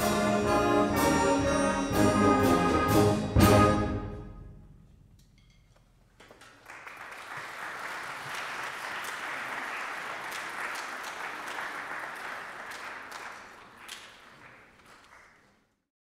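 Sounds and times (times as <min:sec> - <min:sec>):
audience applauding: 0:06.2 - 0:15.6.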